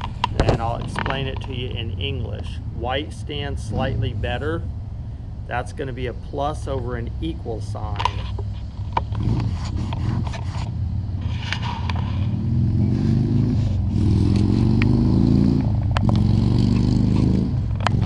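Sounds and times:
vehicle engine accelerating: 0.0 - 18.0
wind rumble on microphone: 6.9 - 14.0.

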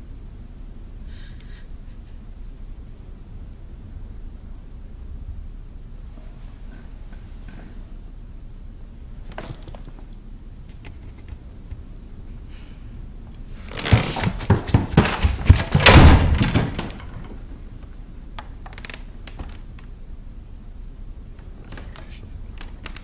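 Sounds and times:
knocking and banging inside chest: 13.7 - 17.7
faint clicks: 21.4 - 23.0.

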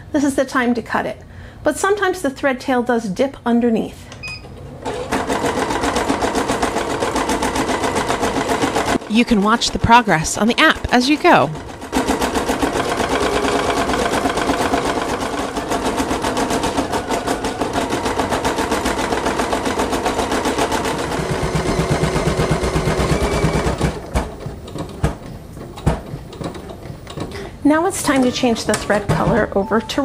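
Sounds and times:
embroidery machine stitching: 4.8 - 27.3.

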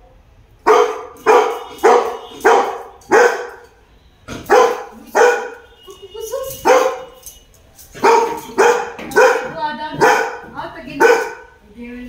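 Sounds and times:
dog barking: 0.6 - 3.7, 4.4 - 7.2, 8.0 - 11.6.

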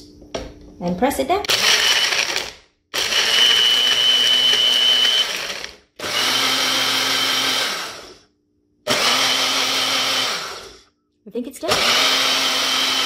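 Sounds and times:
blender whining: 1.5 - 8.3, 8.9 - 10.8, 11.7 - 13.0.

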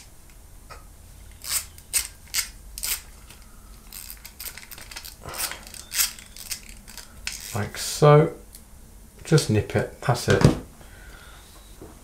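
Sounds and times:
metal clicks and scrapes: 1.3 - 7.6.

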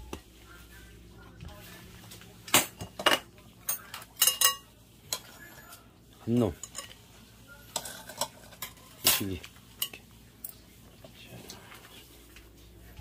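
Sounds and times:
metal utensil clinking on basket: 2.5 - 5.3, 6.5 - 7.0, 7.7 - 10.6.

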